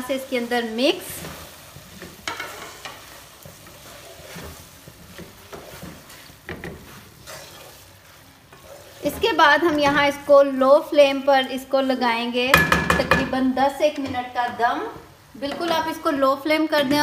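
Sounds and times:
food sizzling in oil: 0:00.0 - 0:17.0
spoon scraping and knocking pot: 0:01.2 - 0:07.8.

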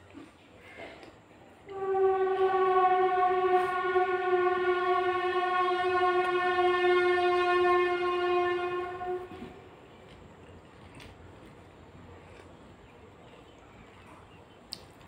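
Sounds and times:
long steady horn-like tone: 0:01.5 - 0:11.6.

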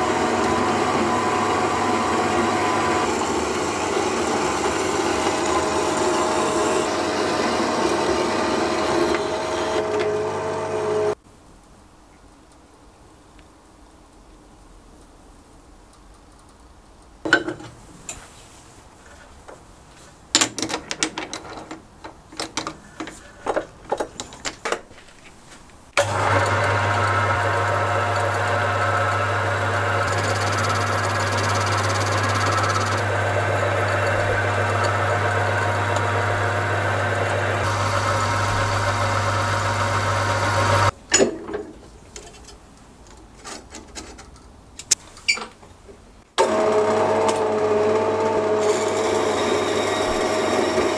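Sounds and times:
lathe motor hum and belt whine: 0:00.0 - 0:11.2, 0:26.0 - 0:40.9, 0:46.4 - 0:50.9
metallic clicks and knocks: 0:20.3 - 0:24.9.

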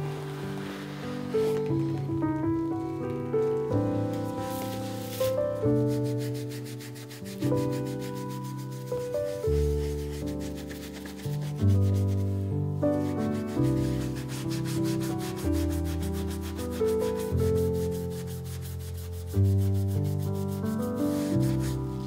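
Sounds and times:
cloth rubbing on leather boot: 0:00.0 - 0:02.8, 0:03.4 - 0:12.4, 0:13.4 - 0:22.0
gentle piano music: 0:00.0 - 0:22.0.

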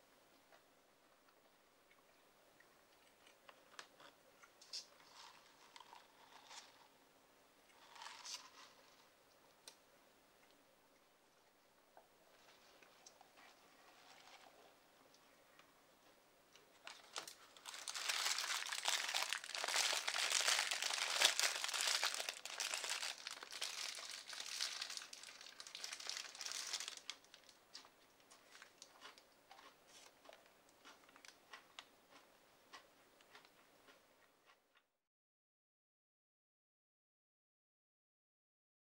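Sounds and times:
paper wrapper crinkling: 0:16.8 - 0:27.6.

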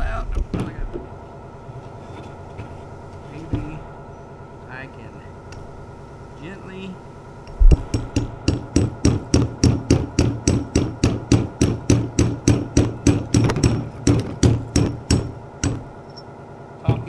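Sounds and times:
hammer tapping: 0:07.5 - 0:17.0.

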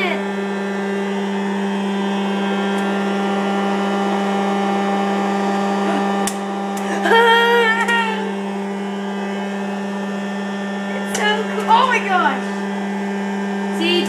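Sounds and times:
popcorn popper fan humming: 0:00.0 - 0:14.0.

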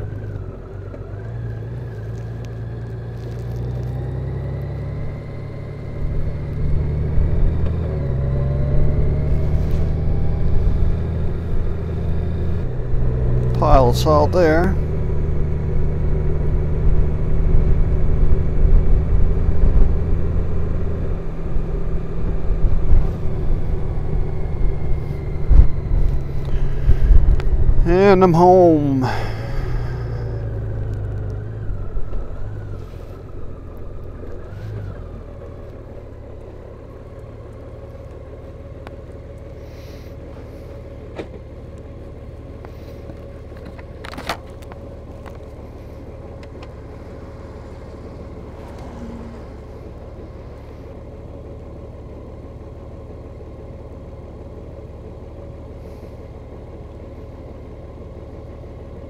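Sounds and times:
motorcycle engine idling: 0:23.3 - 0:59.0.

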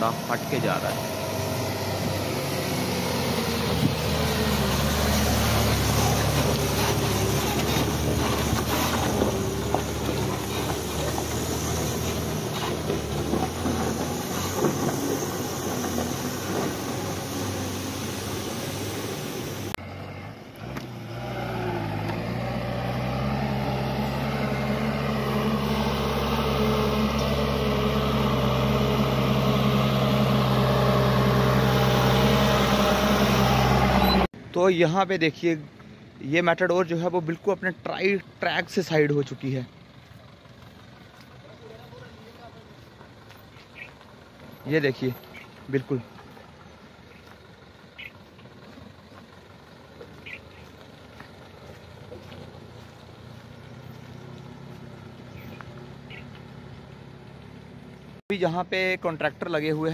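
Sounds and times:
truck engine running: 0:00.0 - 0:59.9.

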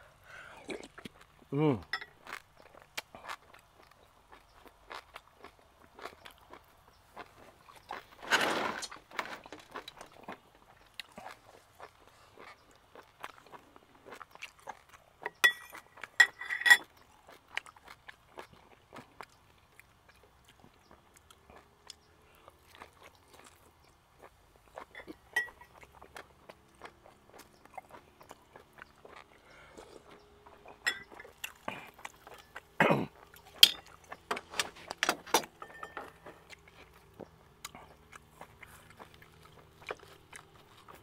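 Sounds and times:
chewing: 0:00.6 - 0:08.2, 0:08.9 - 0:41.0
spoon clinking in glass bowl: 0:15.4 - 0:16.8, 0:30.8 - 0:31.2, 0:35.6 - 0:36.1.

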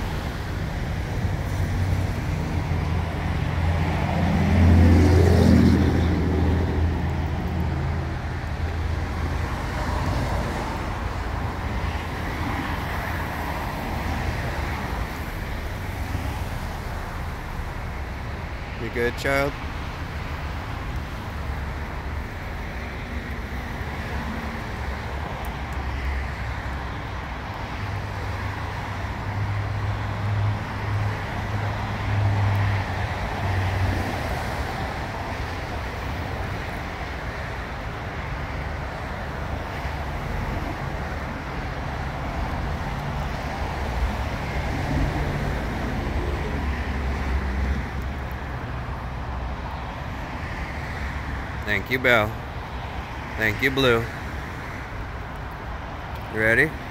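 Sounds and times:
traffic on wet roads: 0:00.0 - 0:56.9.

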